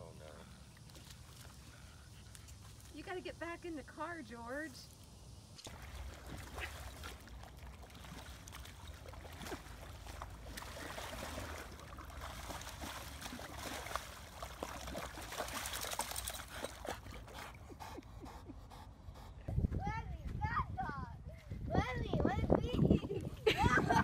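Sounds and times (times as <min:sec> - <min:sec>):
dog splashing in muddy puddle: 0:00.8 - 0:03.2, 0:05.6 - 0:17.6.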